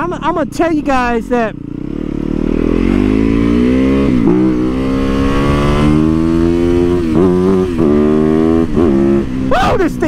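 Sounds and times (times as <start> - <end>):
motorcycle engine accelerating: 0.0 - 10.0.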